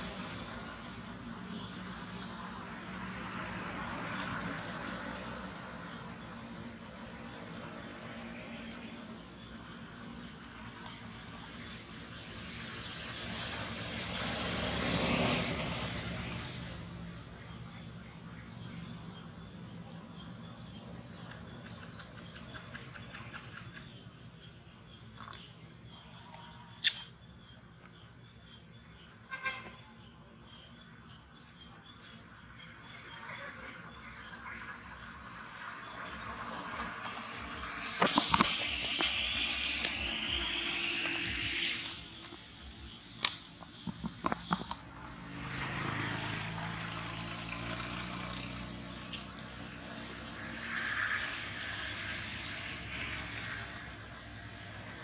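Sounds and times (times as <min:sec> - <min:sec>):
insects droning: 0:00.0 - 0:55.0
sharp click: 0:26.8 - 0:27.1
sharp clicks and rustles: 0:36.8 - 0:40.1, 0:43.1 - 0:44.8.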